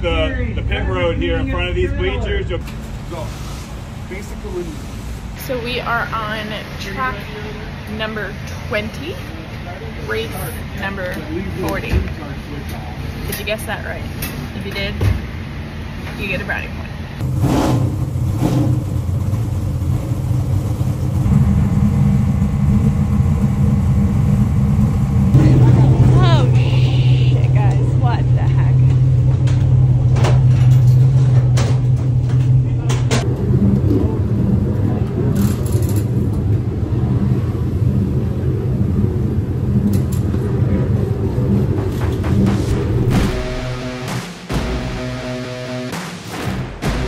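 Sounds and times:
race car engine idling: 0:17.2 - 0:46.0.

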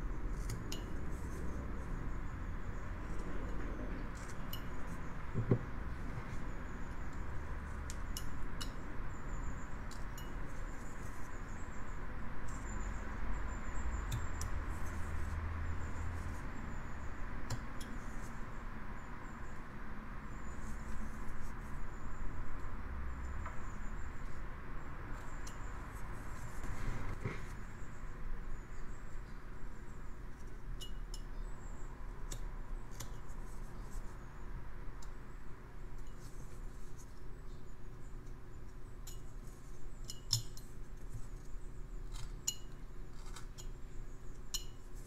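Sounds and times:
knife carving wood: 0:00.3 - 0:01.5, 0:32.2 - 0:34.2, 0:40.3 - 0:43.7.

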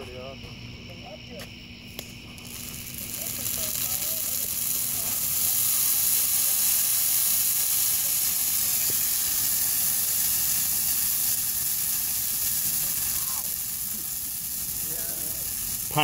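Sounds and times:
tree burning with a hiss: 0:00.0 - 0:16.0.

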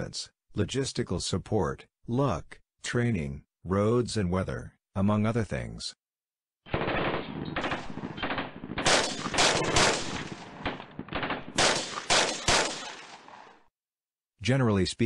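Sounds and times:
machine-gun bursts: 0:06.7 - 0:13.5
single loud gunshots: 0:06.7 - 0:13.6.

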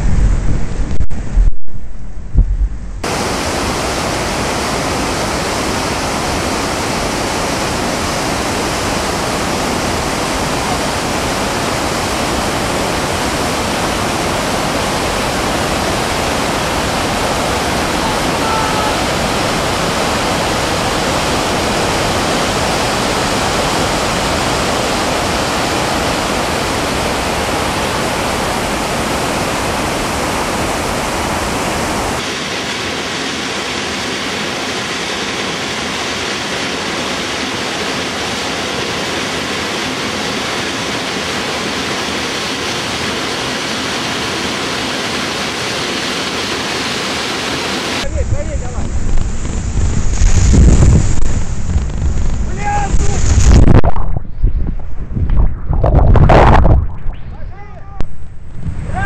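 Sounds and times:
water splashing: 0:03.0 - 0:34.6, 0:53.0 - 0:58.8
whitewater rapids rushing: 0:03.0 - 0:48.1.

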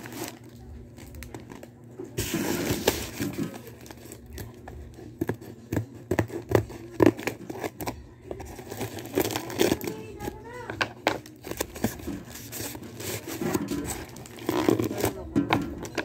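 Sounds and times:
plastic crinkling: 0:00.0 - 0:16.0
tape being cut: 0:10.8 - 0:15.2
tape tearing rasp: 0:11.5 - 0:15.2.

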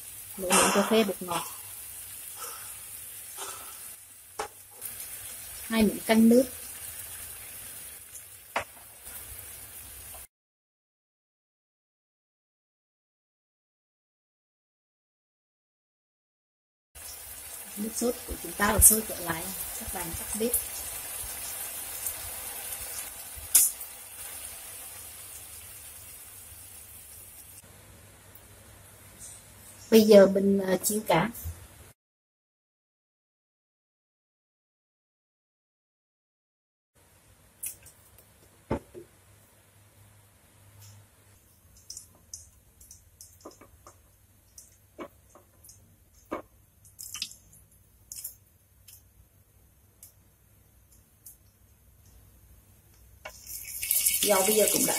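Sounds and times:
oil crackling in a wok: 0:00.0 - 0:10.3, 0:17.0 - 0:27.6, 0:40.6 - 0:49.3, 0:52.9 - 0:54.9
sauce bubbling and sizzling in a pan: 0:00.0 - 0:10.3, 0:17.0 - 0:30.1, 0:40.0 - 0:49.2, 0:53.1 - 0:54.9.

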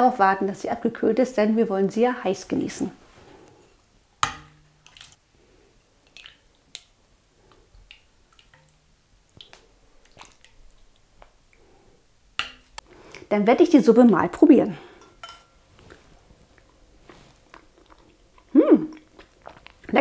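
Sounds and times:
metal ladle knocking on pot: 0:04.2 - 0:04.9
soup slopping and dripping: 0:04.2 - 0:05.2, 0:06.0 - 0:11.8.

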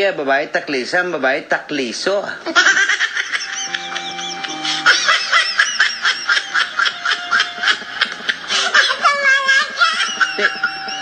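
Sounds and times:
high-pitched laughter: 0:02.5 - 0:11.0.

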